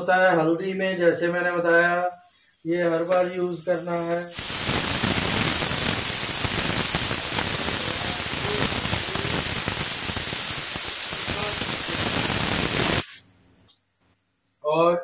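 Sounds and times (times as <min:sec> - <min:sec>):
food sizzling in hot oil: 0:01.4 - 0:13.2.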